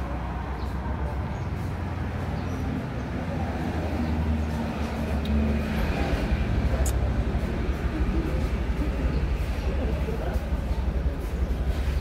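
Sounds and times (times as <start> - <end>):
road traffic rumble: 0.0 - 12.0
vehicle engine hum: 0.0 - 12.0.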